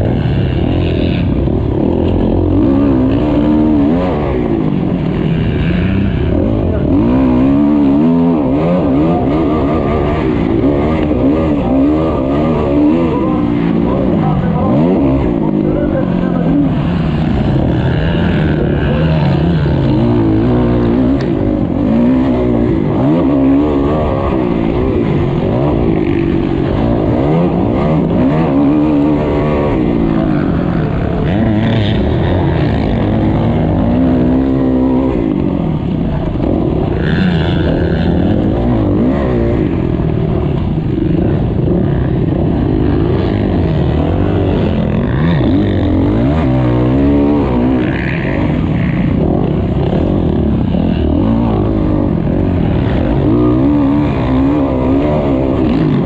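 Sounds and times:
motocross bike engine revving: 0.0s - 56.0s
other motocross bikes: 0.0s - 56.0s.

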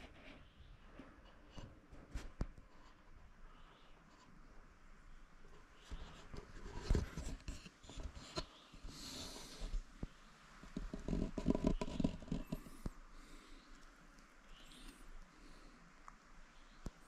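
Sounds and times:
camera handling scrapes and knocks: 6.0s - 8.6s, 10.7s - 12.8s
scratchy brushing: 10.7s - 12.9s.

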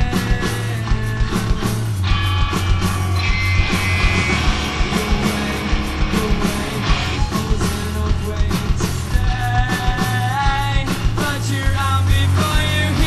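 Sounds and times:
drums striking: 0.0s - 13.0s
live rock band playing: 0.0s - 13.0s
bending melody line: 2.0s - 8.4s.

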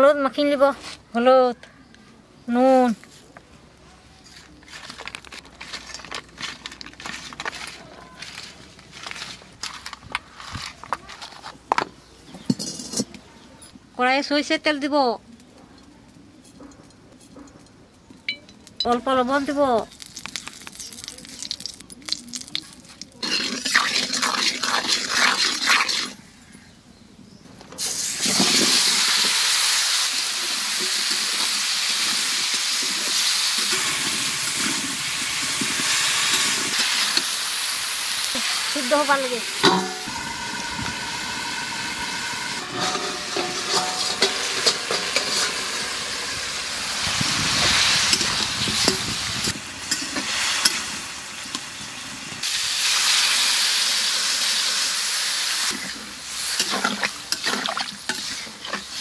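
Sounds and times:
vegetables sizzling in hot oil: 19.3s - 26.2s, 27.8s - 59.0s.

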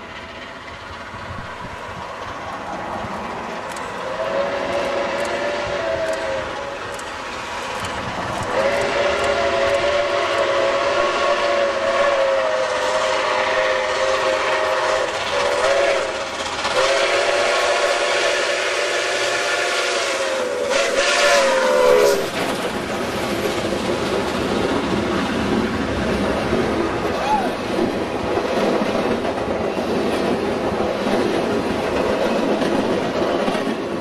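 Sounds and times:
train rumbling by: 0.0s - 34.0s
steam locomotive chime whistle: 4.1s - 6.9s, 8.5s - 22.4s.

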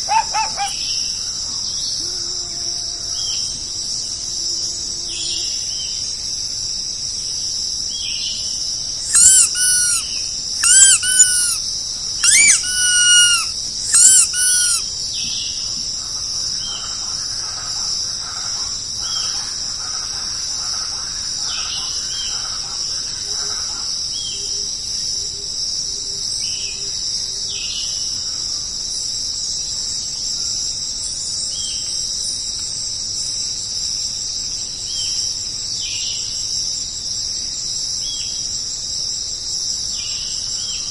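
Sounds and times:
loud high calls bending down: 0.0s - 0.8s, 9.1s - 11.6s, 12.2s - 14.9s
high-pitched insect chorus: 0.0s - 40.9s.

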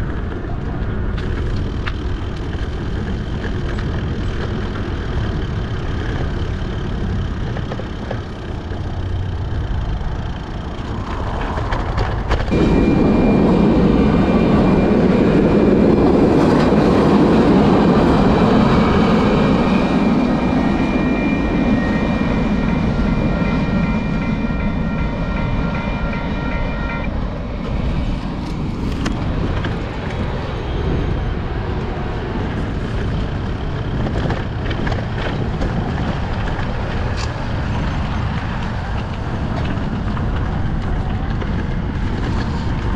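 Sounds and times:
train rumbling: 0.0s - 42.9s
steady high tones: 12.5s - 28.4s.

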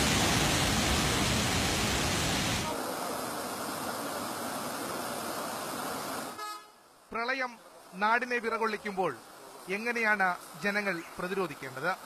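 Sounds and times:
floodwater roaring: 0.0s - 6.4s.

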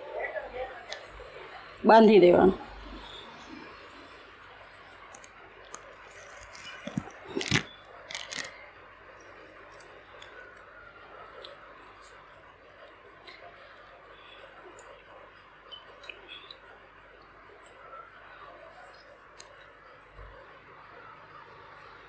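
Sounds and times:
cloth bundle handling noises: 5.9s - 8.5s.

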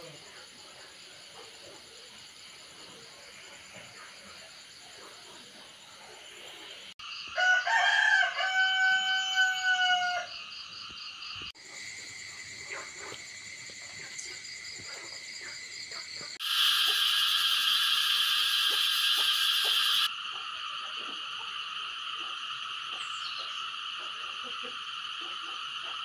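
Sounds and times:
night insects chorus: 0.0s - 26.0s
rooster crowing: 7.2s - 10.4s.

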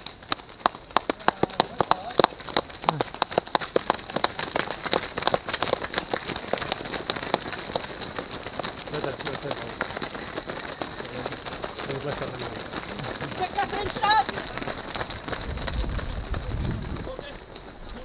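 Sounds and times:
runners' footsteps on asphalt: 0.0s - 18.0s.

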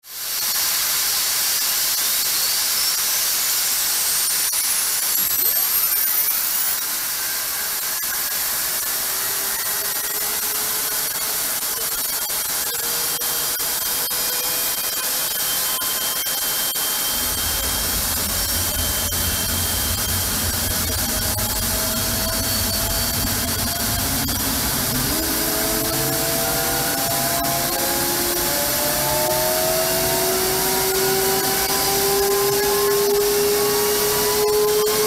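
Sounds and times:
jet engine whine: 4.9s - 35.0s
deep low rumble: 17.1s - 28.9s.

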